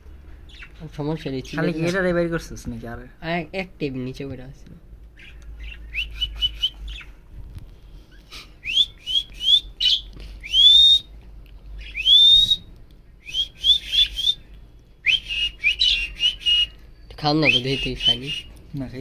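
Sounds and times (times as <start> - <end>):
budgerigar chirping: 9.1 - 11.0, 15.2 - 16.7.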